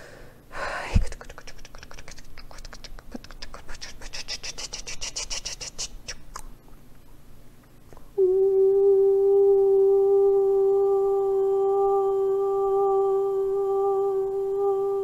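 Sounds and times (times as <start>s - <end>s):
woman humming: 8.2s - 15.0s.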